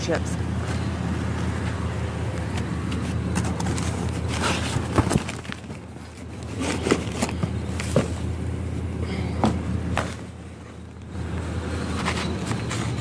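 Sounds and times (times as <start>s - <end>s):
steady low hum: 0.0s - 13.0s
bags and packaging rustling: 2.9s - 8.3s
knocks and scrapes: 11.8s - 13.0s.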